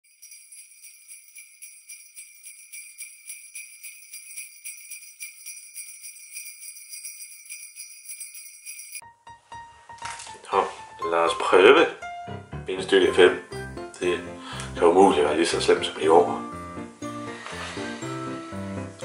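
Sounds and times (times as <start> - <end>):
sleigh bells jingling: 0.0 - 9.0.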